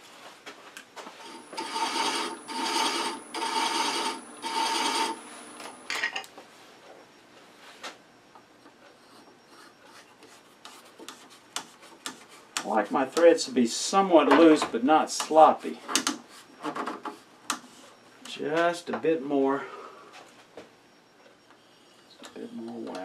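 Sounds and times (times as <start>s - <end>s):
thread chaser scraping wood: 1.2s - 5.9s.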